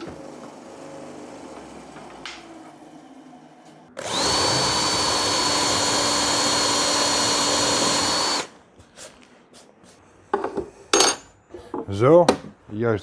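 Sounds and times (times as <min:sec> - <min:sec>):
cordless drill whining into wood: 0:04.0 - 0:08.5.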